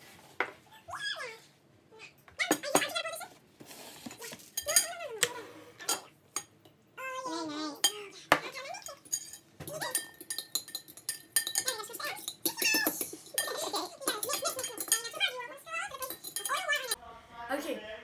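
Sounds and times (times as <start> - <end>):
spoon clinking against glass bowl: 4.5 - 5.0, 8.7 - 17.0.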